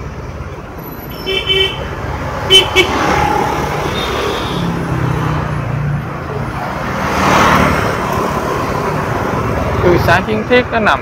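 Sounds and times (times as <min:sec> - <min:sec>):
motorbike and car engines: 0:00.0 - 0:11.0
vehicle passing close: 0:02.0 - 0:10.1.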